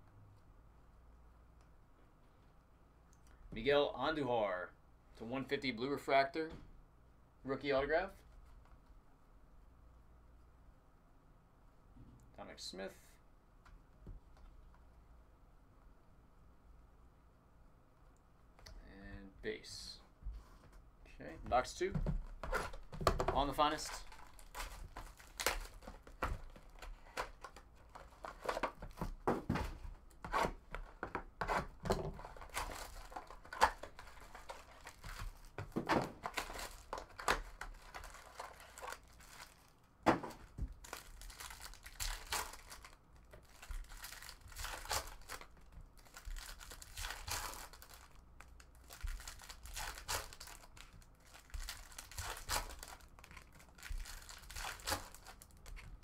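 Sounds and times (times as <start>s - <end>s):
plastic wrappers crinkling and tearing: 22.3s - 29.1s, 32.2s - 39.9s, 40.7s - 56.0s.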